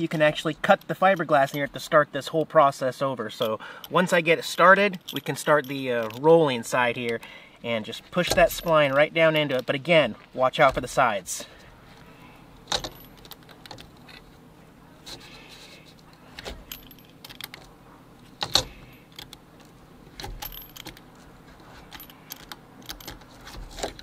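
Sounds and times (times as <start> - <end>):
roller metallic clicks and rattles: 12.6 - 14.4.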